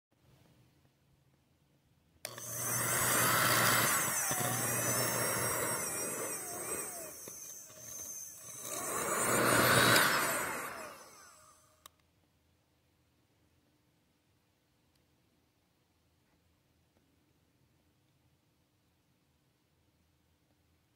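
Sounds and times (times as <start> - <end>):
heat gun fan blowing air: 2.3 - 11.6.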